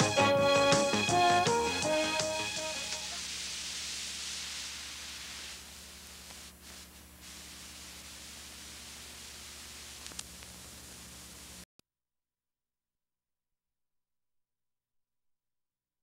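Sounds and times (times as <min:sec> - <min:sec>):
videotape hiss and hum: 0:00.0 - 0:11.6.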